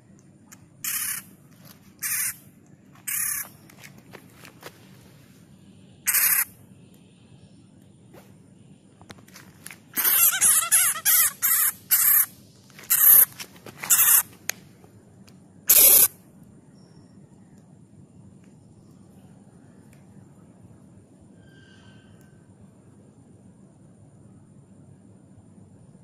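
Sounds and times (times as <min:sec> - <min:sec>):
bat distress screeches: 0:00.8 - 0:01.3, 0:02.0 - 0:02.4, 0:03.0 - 0:03.6, 0:06.1 - 0:06.5, 0:10.0 - 0:14.4, 0:15.7 - 0:16.1, 0:21.4 - 0:22.2.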